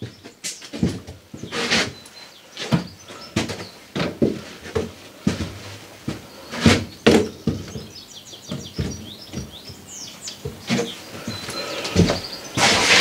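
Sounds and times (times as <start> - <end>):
small bird chirping: 6.2 - 13.0.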